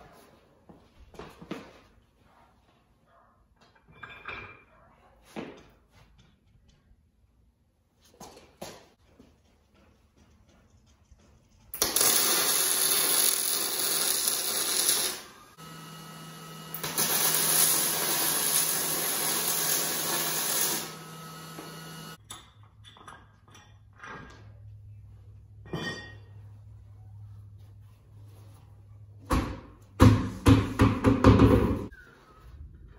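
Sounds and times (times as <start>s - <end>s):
handheld power tool running: 11.8s - 22.2s.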